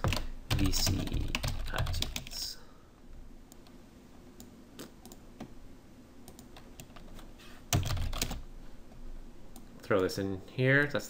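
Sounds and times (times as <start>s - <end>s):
computer keyboard typing: 0.0s - 2.5s, 6.3s - 8.4s.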